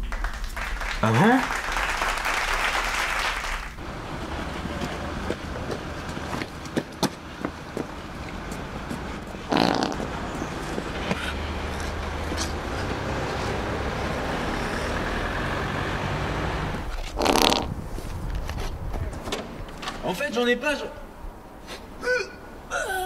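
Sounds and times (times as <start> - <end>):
street traffic rumble: 0.0 - 23.0.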